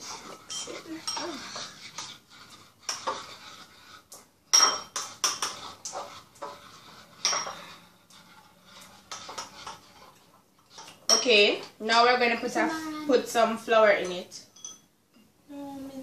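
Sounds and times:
spoons scraping in bowls: 0.0 - 14.9
spoon clinking against bowl: 14.0 - 14.9.

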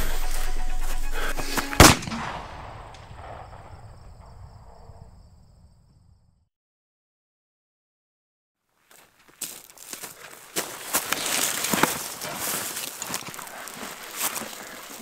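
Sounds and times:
pistol shot: 1.8 - 4.8.

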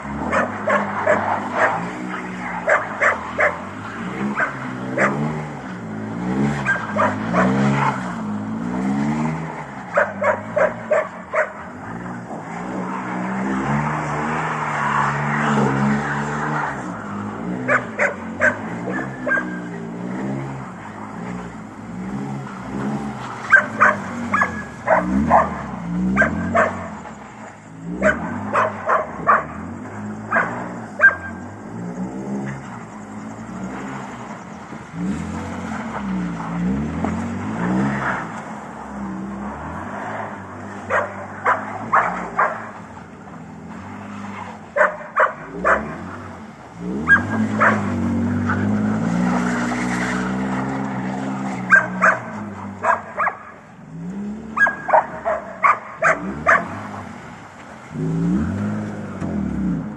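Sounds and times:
car engine revving: 0.0 - 59.9
dog barking: 0.2 - 1.9, 2.6 - 3.7, 4.3 - 5.3, 6.6 - 7.6, 10.0 - 11.7, 17.6 - 19.7, 23.5 - 26.9, 28.0 - 29.6, 30.3 - 31.4, 40.8 - 42.7, 44.8 - 46.0, 47.0 - 48.0, 51.7 - 53.6, 54.6 - 56.8.

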